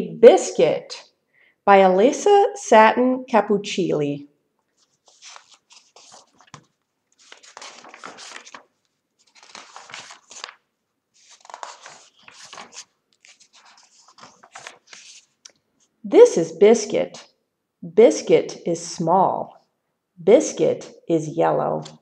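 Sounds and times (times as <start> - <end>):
book pages turning: 4.6 - 15.9.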